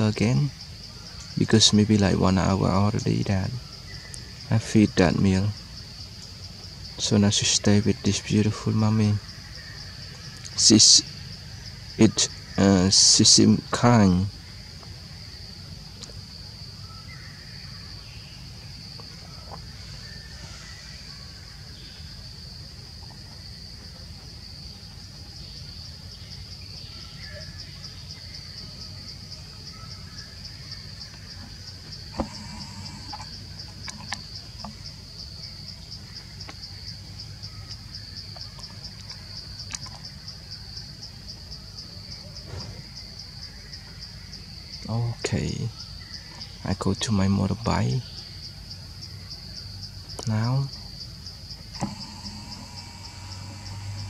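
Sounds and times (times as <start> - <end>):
high-pitched insect drone: 0.0 - 54.0
sharp clicks: 51.7 - 54.0.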